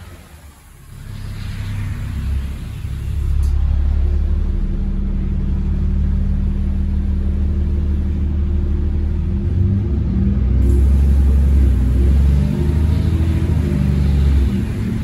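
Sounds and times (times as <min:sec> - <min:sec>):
bus diesel engine under load: 0:00.0 - 0:15.0.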